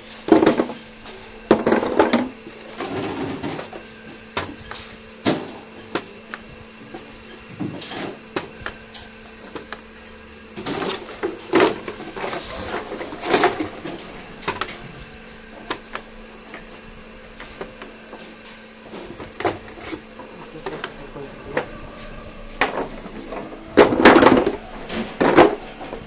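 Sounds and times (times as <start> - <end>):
steady machine hum: 0.0 - 26.0
faint high whine: 0.5 - 26.0
metal valves clinking and knocking: 22.6 - 25.6.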